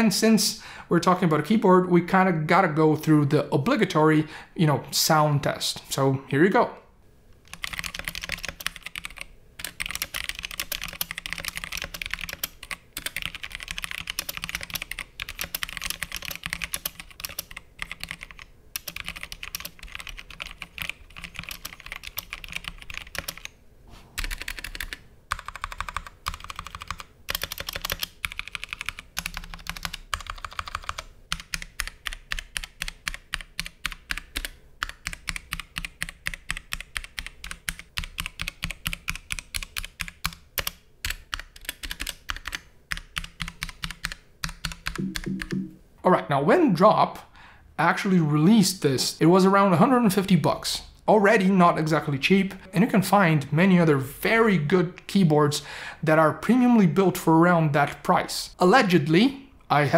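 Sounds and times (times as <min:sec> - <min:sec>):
mechanical keyboard typing: 0:07.5 - 0:23.5, 0:24.2 - 0:45.7.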